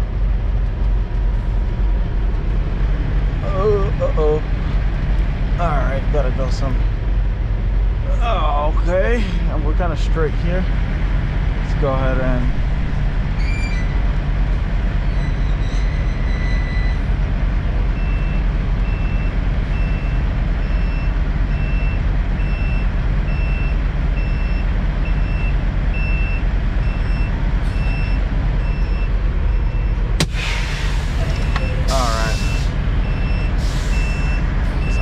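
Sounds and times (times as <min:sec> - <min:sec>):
truck diesel engine rumbling: 0:00.0 - 0:35.0
reversing alarm beeping: 0:15.2 - 0:17.1, 0:18.0 - 0:30.1, 0:31.2 - 0:35.0.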